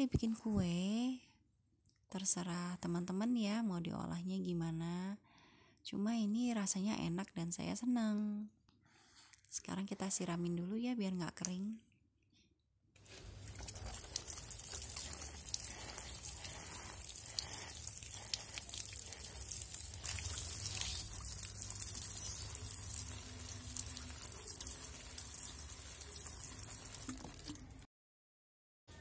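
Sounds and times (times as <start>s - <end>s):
water showering onto leaves and soil: 13.0s - 27.8s.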